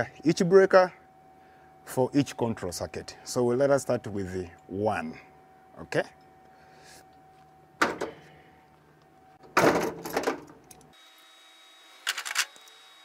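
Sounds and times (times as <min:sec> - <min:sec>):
hand tools and wire clicking: 0:09.8 - 0:11.0.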